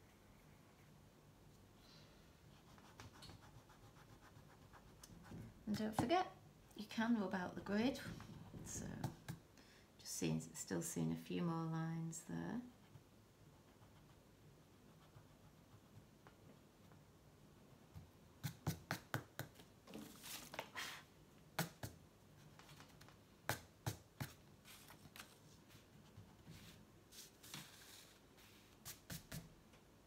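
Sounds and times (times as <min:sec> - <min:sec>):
pencil taps and strokes on paper: 0:02.7 - 0:06.2, 0:08.8 - 0:09.5, 0:17.9 - 0:19.7, 0:21.5 - 0:22.0, 0:22.6 - 0:24.4, 0:28.8 - 0:29.5
hand brushing across paper: 0:24.2 - 0:29.5.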